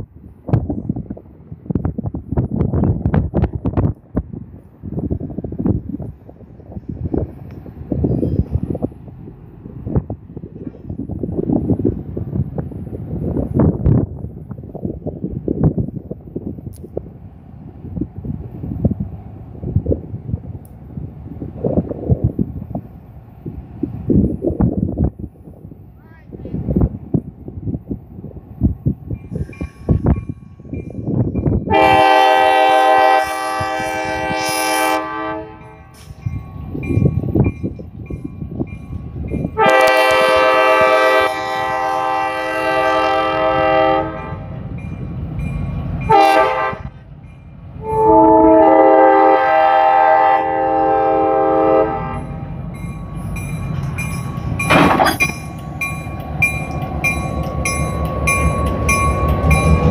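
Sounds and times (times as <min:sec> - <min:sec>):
locomotive engine rumbling: 0:00.0 - 0:59.9
locomotive horn blasts: 0:31.6 - 0:36.1, 0:39.5 - 0:44.6, 0:46.0 - 0:47.0, 0:47.8 - 0:52.4.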